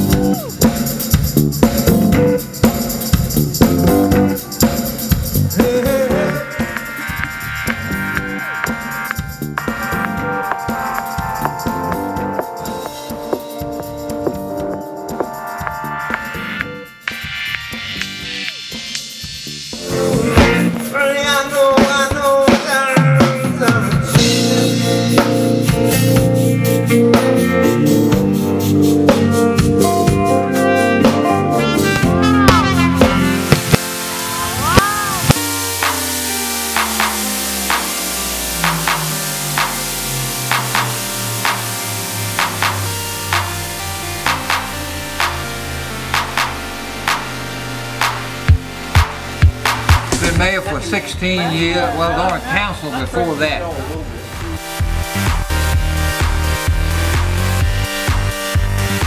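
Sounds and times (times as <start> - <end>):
band music: 0.0 - 59.0
drum kit beat: 0.0 - 59.0
held bass and chords: 0.0 - 59.0
melody line: 5.9 - 16.9, 30.0 - 49.7.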